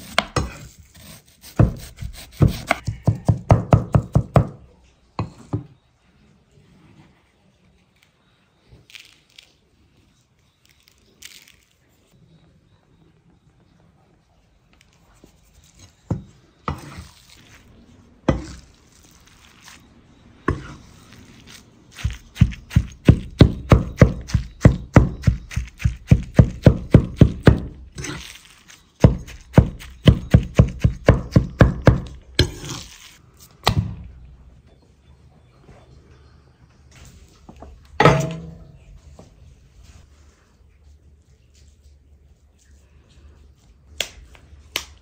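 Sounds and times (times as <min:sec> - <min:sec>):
knife chopping on wooden board: 0:01.5 - 0:04.6, 0:22.0 - 0:28.2, 0:29.0 - 0:32.8.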